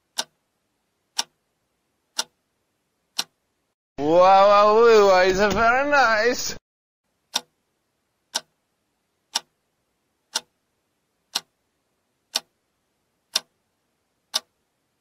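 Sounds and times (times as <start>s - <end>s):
clock ticking: 0.0s - 1.5s, 2.1s - 2.5s, 3.1s - 3.5s, 7.2s - 7.7s, 8.3s - 8.7s, 9.3s - 9.7s, 10.3s - 14.6s.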